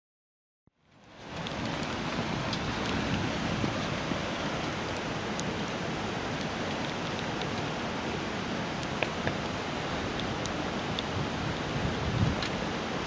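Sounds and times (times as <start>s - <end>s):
raindrops ticking close by: 0.8s - 13.0s
steady rain falling: 0.8s - 13.0s.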